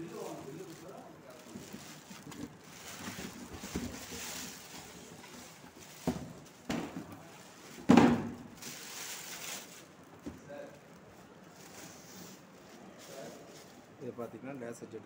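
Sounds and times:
plastic bag rustling and crinkling: 0:00.0 - 0:14.2.

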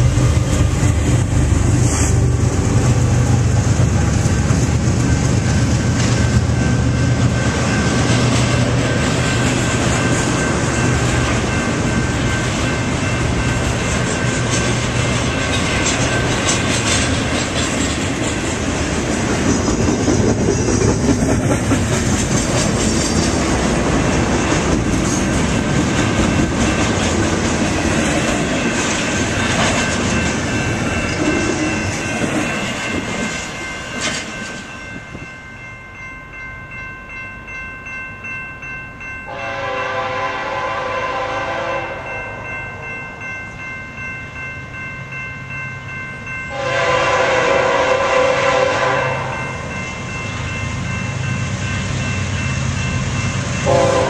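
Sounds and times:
rail clicks: 0:00.0 - 0:35.7
train wheels rumbling on rail: 0:00.0 - 0:35.7, 0:39.0 - 0:54.0.

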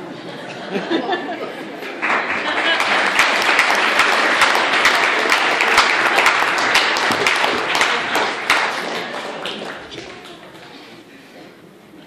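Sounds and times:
congregation applauding: 0:01.8 - 0:10.7.

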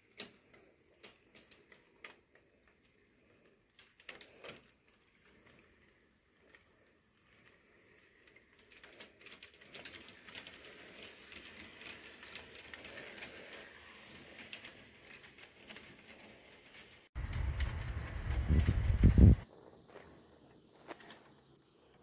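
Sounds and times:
model train clicking on track: 0:08.0 - 0:22.0.

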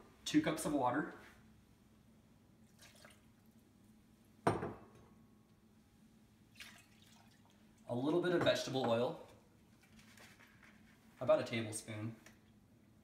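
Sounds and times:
water pouring into saucepan: 0:02.7 - 0:03.4, 0:06.6 - 0:07.6.

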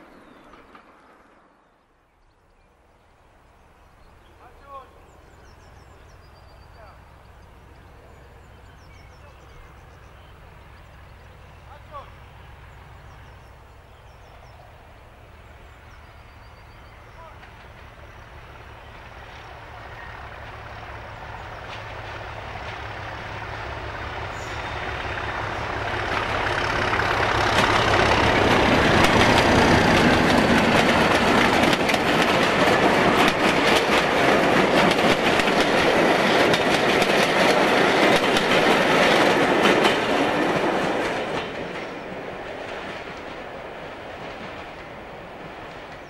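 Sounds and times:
diesel locomotive passing: 0:00.0 - 0:46.0
train wheels clattering over rail joints: 0:17.2 - 0:46.0.

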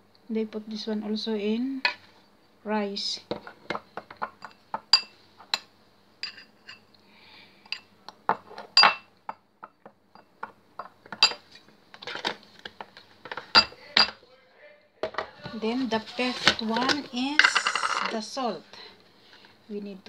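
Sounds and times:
metal spoon clinking on bowl: 0:04.3 - 0:06.8.

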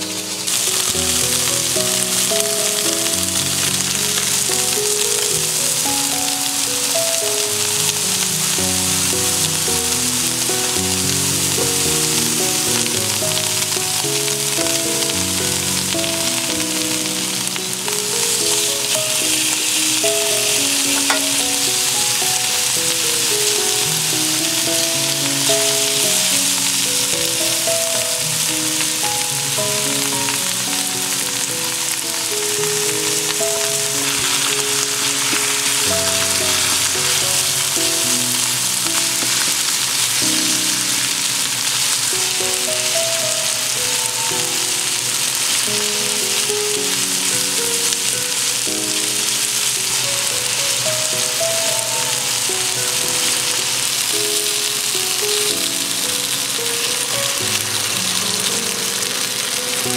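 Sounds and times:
food sizzling in a frying pan: 0:00.0 - 0:59.9
soft background music: 0:00.0 - 0:59.9
tongs turning food: 0:16.9 - 0:42.7.

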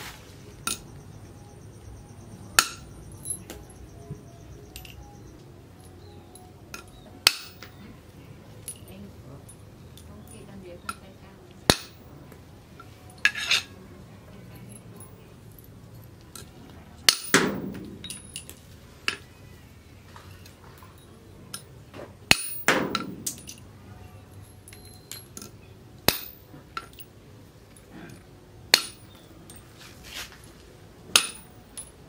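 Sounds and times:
machete chopping metal nails: 0:02.5 - 0:03.7, 0:06.7 - 0:07.8, 0:11.7 - 0:12.1, 0:16.4 - 0:19.2, 0:22.3 - 0:23.6, 0:25.4 - 0:27.0, 0:28.7 - 0:29.3, 0:31.1 - 0:31.9.

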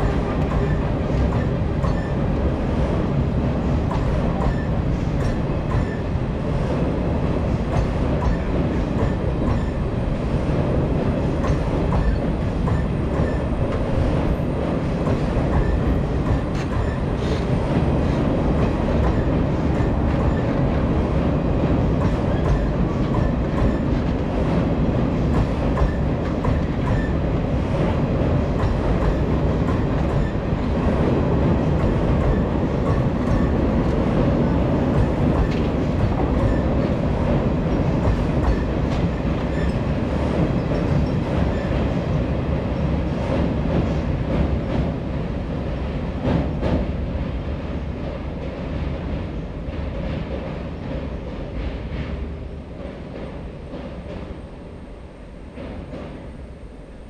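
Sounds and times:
wheels clacking over rail joints: 0:00.0 - 0:09.9, 0:10.6 - 0:42.2
train rumbling past: 0:00.0 - 0:57.0.

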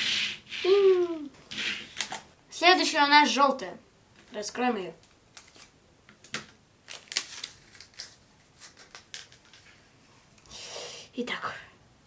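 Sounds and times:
plastic wrapper crinkling: 0:05.0 - 0:09.7.

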